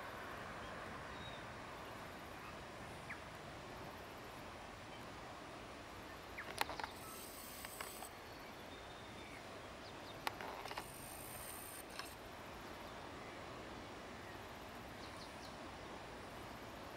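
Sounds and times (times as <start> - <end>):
faint high hiss: 0.0 - 16.9
faint outdoor background: 0.0 - 16.9
bird rustling in dry grass: 6.4 - 8.1, 10.3 - 12.2.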